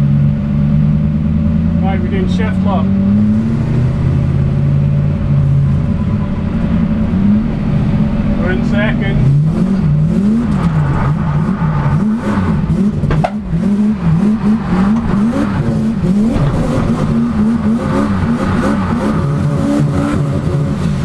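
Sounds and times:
engine revving up and down: 0.0s - 21.0s
short knock: 13.0s - 13.4s.

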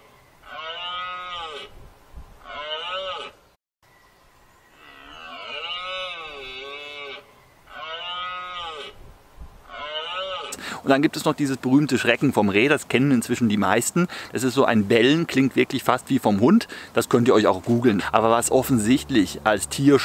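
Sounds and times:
red deer stag roaring: 4.7s - 9.0s, 9.6s - 10.6s.

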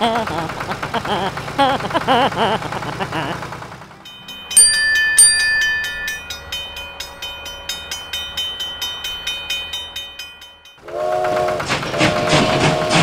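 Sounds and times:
level crossing bell ringing: 4.0s - 10.8s
train horn: 10.8s - 13.0s.

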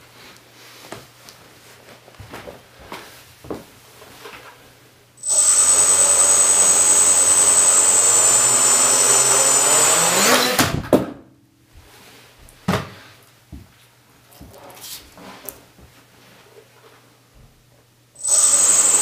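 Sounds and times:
quadcopter motors whining: 5.2s - 10.7s, 18.2s - 19.0s.

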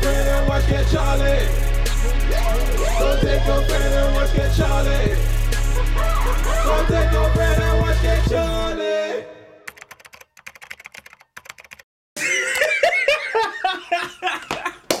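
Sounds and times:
hip-hop music: 0.0s - 9.7s
keyboard typing: 9.7s - 11.9s
person laughing: 12.2s - 15.0s.

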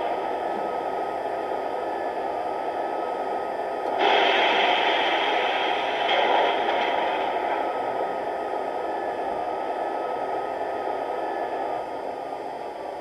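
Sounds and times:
hissing rushing noise from loudspeaker: 4.0s - 7.6s.

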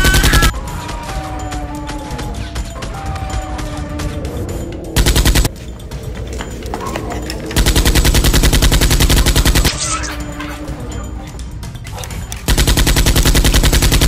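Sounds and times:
automatic gunfire: 0.0s - 0.5s, 5.0s - 5.5s, 7.6s - 9.8s, 12.5s - 14.0s
background music: 0.0s - 14.0s.

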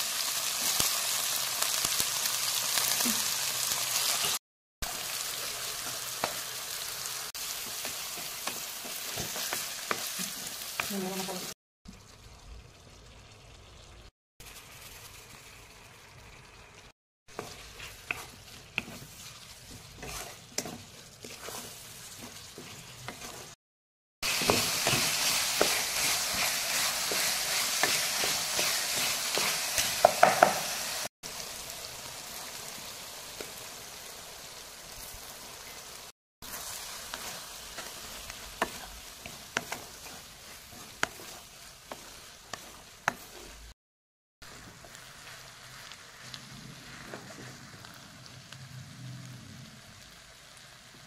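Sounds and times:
vegetables sizzling in oil: 0.0s - 23.6s, 24.2s - 43.8s, 44.4s - 51.0s
spoon scraping metal pan: 17.3s - 23.6s, 37.1s - 43.7s.

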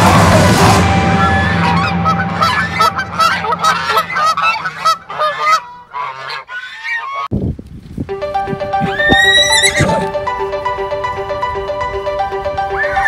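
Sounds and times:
geese honking: 0.0s - 7.3s, 8.2s - 10.6s, 12.6s - 13.0s.

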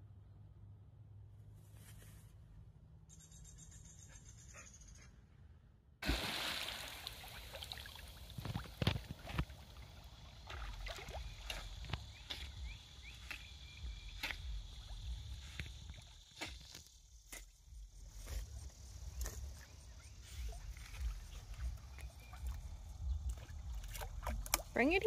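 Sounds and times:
water sloshing and splashing: 6.0s - 17.5s, 18.1s - 25.0s
wind rumbling on microphone: 8.0s - 12.9s, 20.3s - 25.0s.

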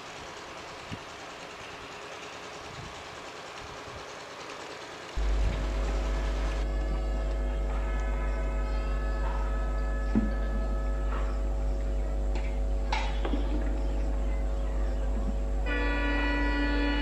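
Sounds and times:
diesel locomotive drone: 0.0s - 17.0s
locomotive horn: 5.2s - 13.1s, 14.8s - 17.0s.

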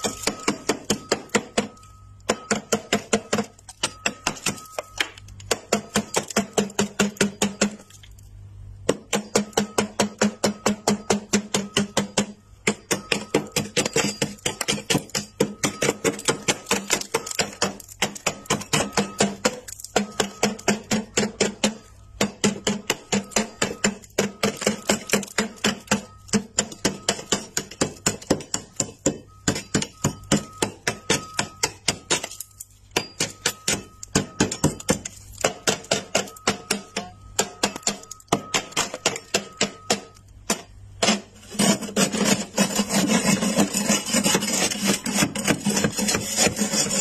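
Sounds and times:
frost scraped off freezer wall: 9.0s - 37.0s, 41.0s - 47.0s.

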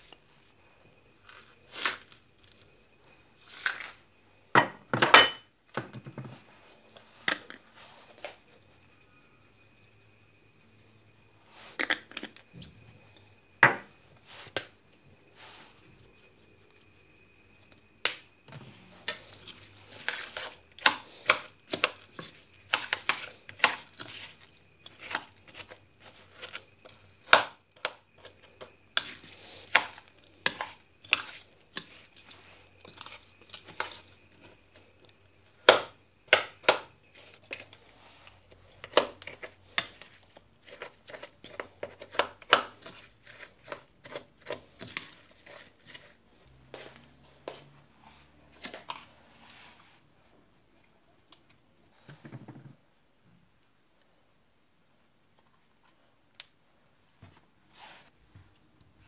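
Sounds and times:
spoon scraping bowl: 19.0s - 27.0s, 28.2s - 34.6s, 37.1s - 47.0s
metal spoon stirring in ceramic bowl: 19.1s - 27.0s, 38.8s - 46.2s.

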